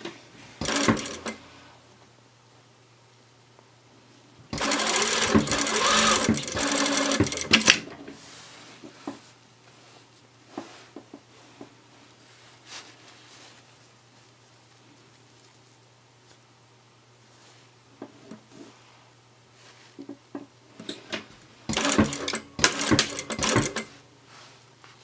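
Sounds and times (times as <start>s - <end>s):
sewing machine stitching: 0.6s - 1.5s, 4.5s - 8.0s, 21.7s - 24.0s.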